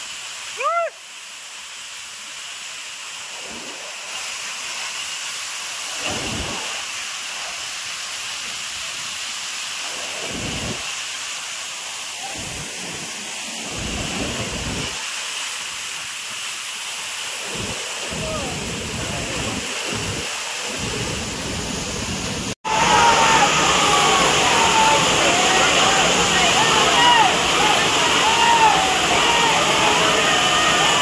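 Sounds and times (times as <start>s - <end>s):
waterfall rushing water: 0.0s - 31.0s.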